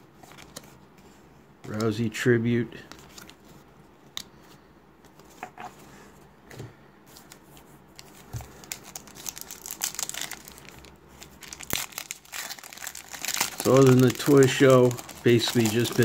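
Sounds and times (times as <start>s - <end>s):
foil wrapper crinkling and tearing: 8.0s - 16.0s.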